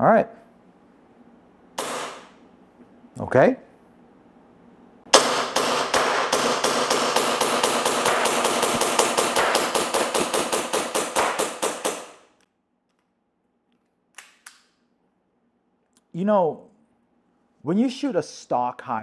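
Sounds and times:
airsoft pistol shots: 1.8 - 2.4, 5.1 - 12.3.

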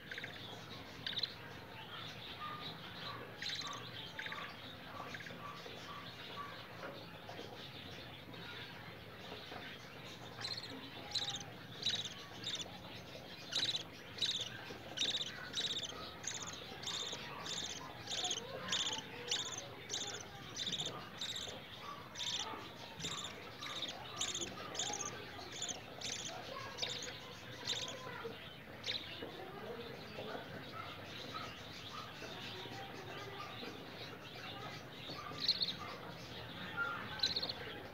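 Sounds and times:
budgie chick begging chirps: 0.0 - 6.6, 10.2 - 29.2, 34.6 - 36.1, 36.7 - 37.9.

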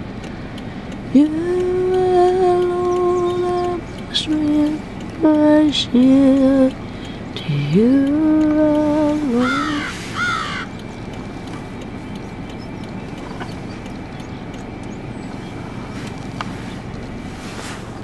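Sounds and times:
low background rumble: 0.0 - 18.0
crow cawing: 9.4 - 10.8.

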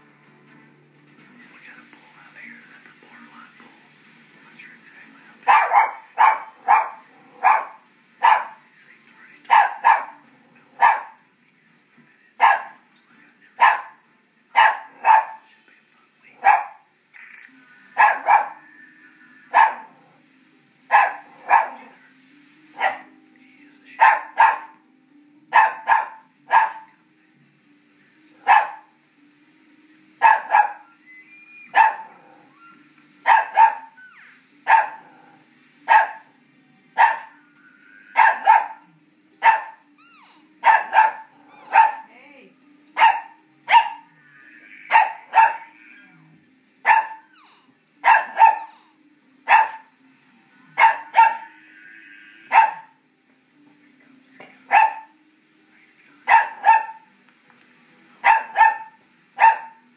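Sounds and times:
small dog barking: 5.5 - 8.6, 9.5 - 10.2, 10.8 - 11.2, 12.4 - 12.8, 13.6 - 14.0, 14.6 - 15.5, 16.4 - 16.8, 18.0 - 18.7, 19.5 - 19.9, 20.9 - 21.9, 22.8 - 23.1, 24.0 - 24.8, 25.5 - 26.9, 28.4 - 28.9, 30.2 - 30.9, 31.7 - 32.3, 33.2 - 34.0, 34.6 - 35.1, 35.9 - 36.3, 37.0 - 37.4, 38.2 - 39.8, 40.6 - 42.1, 43.0 - 44.1, 44.9 - 45.8, 46.8 - 47.4, 48.0 - 48.7, 49.5 - 49.9, 50.8 - 51.6, 52.5 - 53.0, 54.7 - 55.1, 56.3 - 57.1, 58.2 - 59.8.

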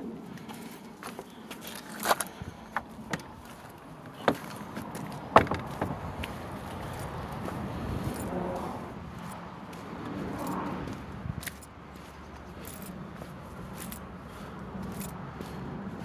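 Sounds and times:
footsteps on gravel: 0.3 - 16.0.

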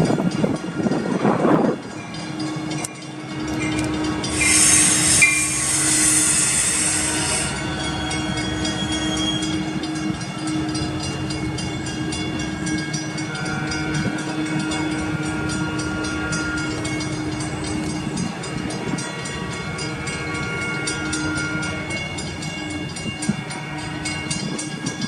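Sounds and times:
trains moving with track noise: 0.0 - 25.0
loud hissing burst: 4.4 - 7.6.

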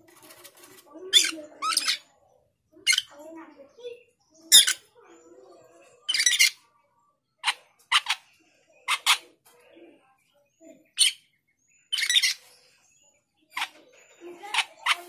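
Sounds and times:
starling calling harshly: 1.1 - 2.1, 4.5 - 4.8, 6.1 - 6.6, 11.9 - 12.4.

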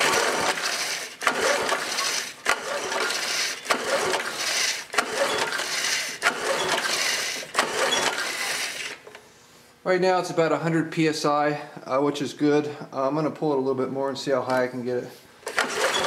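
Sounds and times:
recoil starter rope pulled: 0.0 - 9.1, 15.4 - 16.0.

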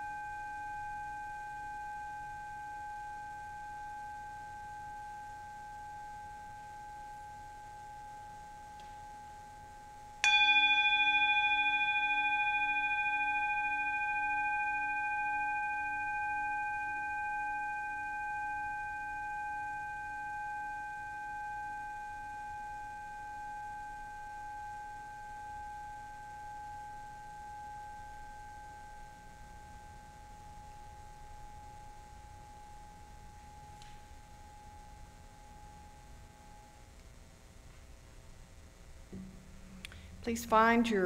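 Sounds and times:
singing bowl ringing: 0.0 - 37.6
mallet striking singing bowl: 10.2 - 19.2.

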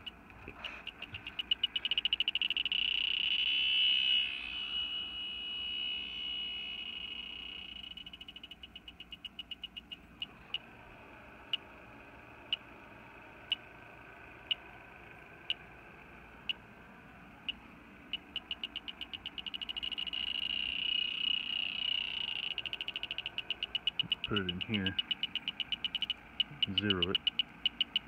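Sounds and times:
leak detector ticking and beeping: 0.0 - 10.7, 12.4 - 12.7, 13.4 - 13.7, 17.4 - 28.0.

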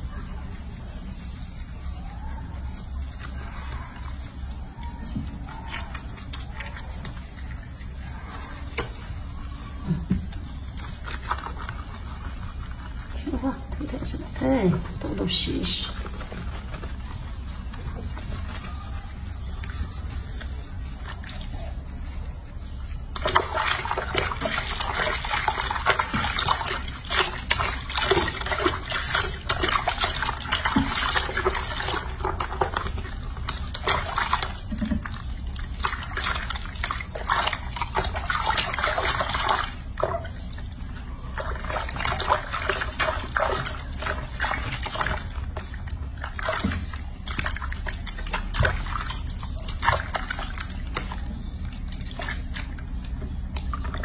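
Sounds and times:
water sloshing in a basin: 0.0 - 54.0.

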